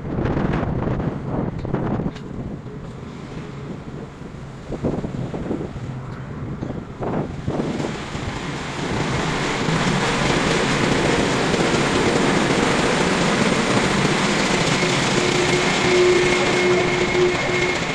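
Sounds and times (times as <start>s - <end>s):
steady tone: 8.4s - 17.9s.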